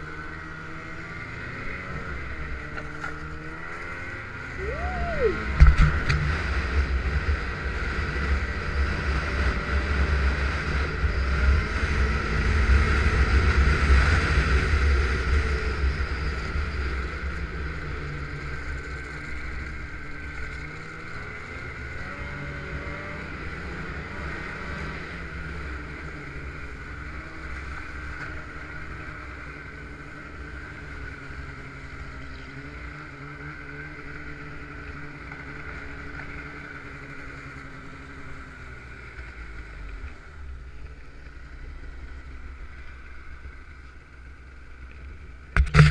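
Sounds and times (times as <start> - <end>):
snowmobile engine running: 0.0 - 45.9.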